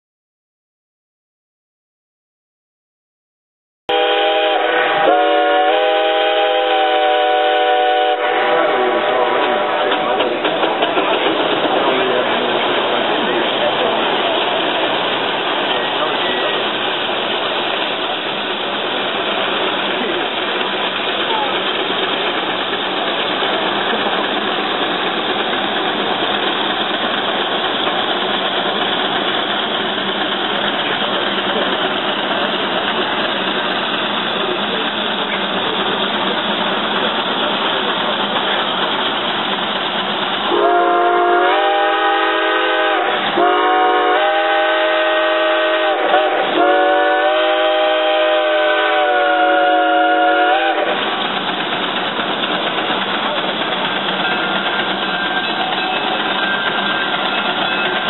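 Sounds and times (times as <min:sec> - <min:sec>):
steam whistle blowing: 0:03.9 - 0:10.0, 0:40.5 - 0:51.0
steam engine exhaust rushing: 0:03.9 - 0:58.0.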